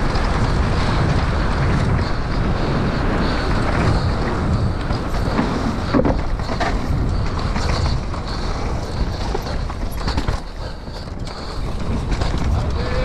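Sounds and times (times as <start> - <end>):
bike knocking on bumps: 0.0 - 13.0
bike rattling: 0.0 - 13.0
tyres rumbling over dirt: 0.0 - 13.0
wind rushing over microphone: 0.0 - 13.0.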